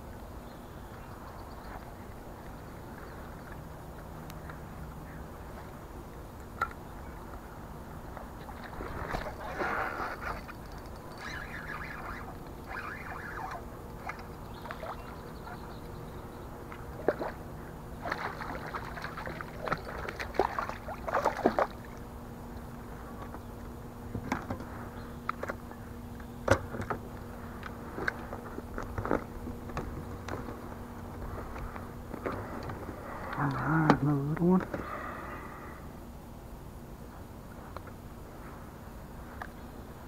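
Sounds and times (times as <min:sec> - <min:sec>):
boat and tackle clicks: 0:06.4 - 0:07.4, 0:08.1 - 0:17.4, 0:18.0 - 0:23.5, 0:24.1 - 0:34.8
fish splashing in water: 0:18.0 - 0:22.0.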